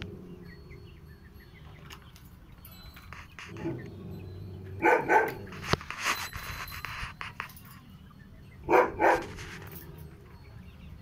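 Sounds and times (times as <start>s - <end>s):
rustling: 2.2s - 8.0s, 8.7s - 10.2s.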